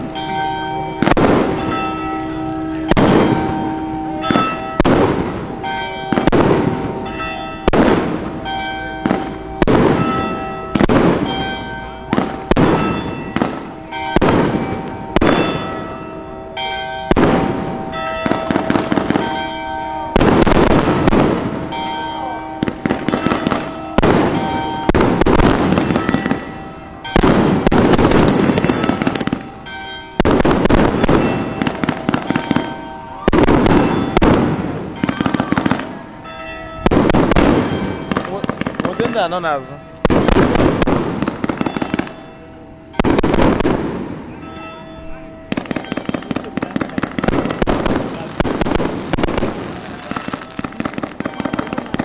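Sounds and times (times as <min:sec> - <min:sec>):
fireworks crackling: 0:00.9 - 0:01.8, 0:02.8 - 0:15.9, 0:17.1 - 0:36.1, 0:36.8 - 0:44.5, 0:45.4 - 0:52.0
firework shells bursting: 0:45.6 - 0:52.0.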